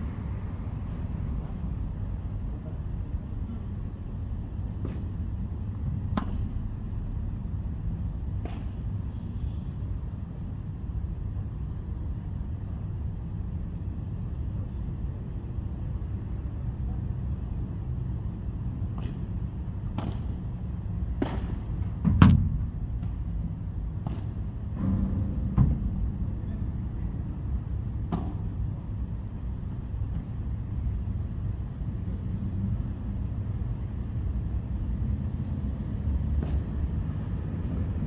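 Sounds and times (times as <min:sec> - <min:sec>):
steady low rumble: 0:20.3 - 0:38.0
padel ball struck by rackets: 0:21.2 - 0:22.5.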